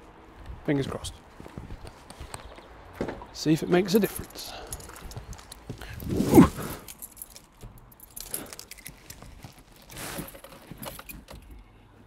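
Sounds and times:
keys jingling: 0:04.0 - 0:11.5
clothing rustling: 0:04.7 - 0:11.3.

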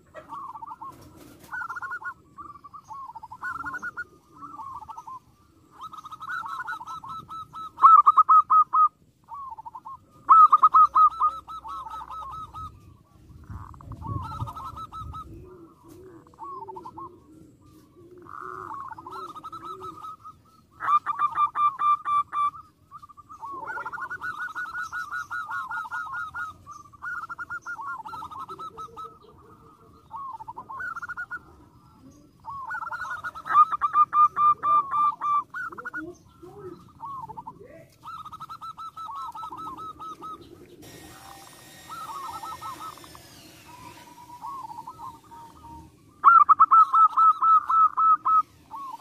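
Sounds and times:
dove cooing: 0:00.0 - 0:49.0
burst of hiss: 0:40.8 - 0:45.1.

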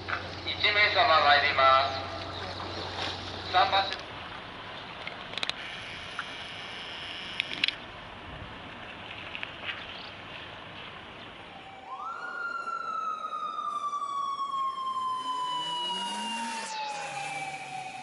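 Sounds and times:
steady background noise: 0:00.0 - 0:18.0
siren wailing: 0:11.4 - 0:18.0.

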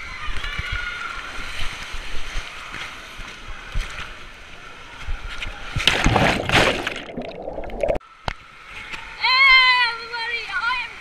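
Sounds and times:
loud splash into pool: 0:05.8 - 0:08.0.

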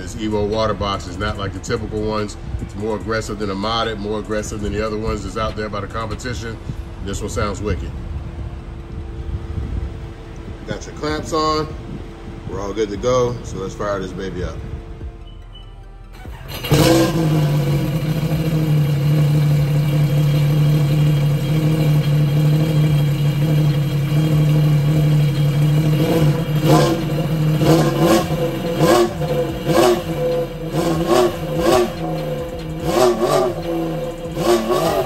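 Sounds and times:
jet ski engine idling and revving: 0:16.2 - 0:35.0.

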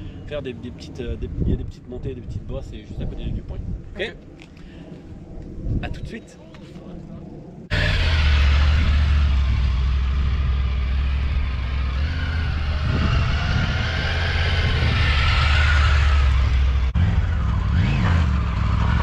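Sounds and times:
motorcycle engine rumbling: 0:07.2 - 0:19.0.

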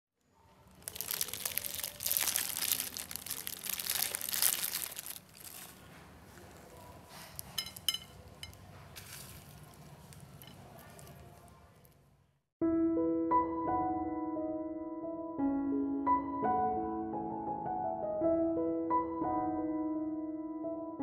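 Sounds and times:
crunchy rustling of salad: 0:00.5 - 0:12.0.

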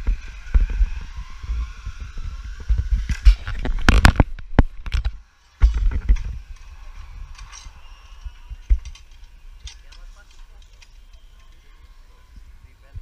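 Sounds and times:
low rumbling microphone noise: 0:00.0 - 0:11.1, 0:11.8 - 0:13.0
metal harness gear clicking: 0:05.7 - 0:11.9.

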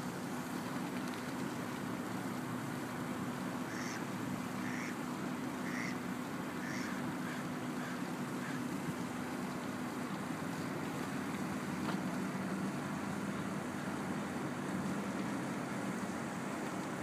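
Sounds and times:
ducks quacking: 0:03.7 - 0:04.0, 0:04.6 - 0:05.0, 0:05.6 - 0:06.0, 0:06.6 - 0:07.0.

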